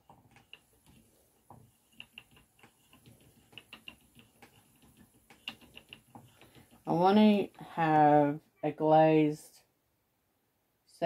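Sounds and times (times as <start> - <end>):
faint clicking of hand spinning yarn: 0.0 - 8.4.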